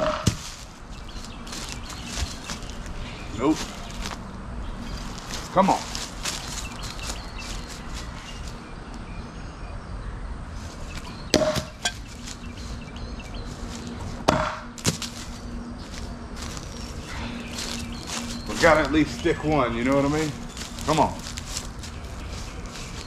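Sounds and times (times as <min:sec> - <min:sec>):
knife hitting wooden post: 0:11.3 - 0:12.0, 0:14.3 - 0:15.1.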